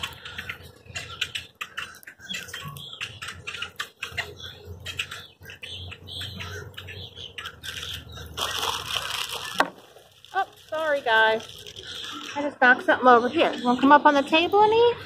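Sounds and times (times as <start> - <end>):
flock of birds calling: 0.0 - 15.0.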